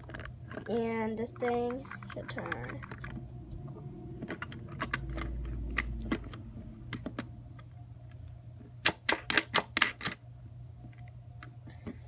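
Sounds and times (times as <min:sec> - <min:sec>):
plastic bricks clicking: 0:00.0 - 0:00.8, 0:04.2 - 0:07.3, 0:08.8 - 0:10.2.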